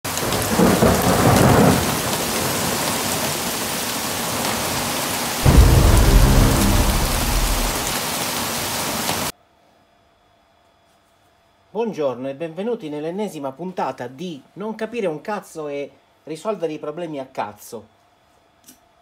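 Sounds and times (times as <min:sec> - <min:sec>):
heavy rain falling: 0:00.1 - 0:09.3
thunder rumbling: 0:05.4 - 0:08.4.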